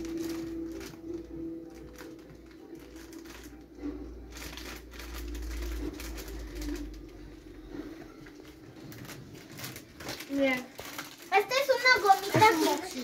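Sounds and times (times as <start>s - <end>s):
packaging clicks and crinkles: 0.0s - 13.0s.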